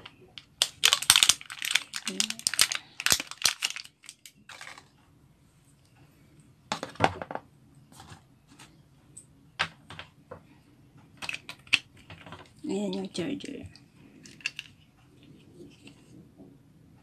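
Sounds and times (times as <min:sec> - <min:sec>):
plastic wrapping rustling: 0:00.0 - 0:04.9.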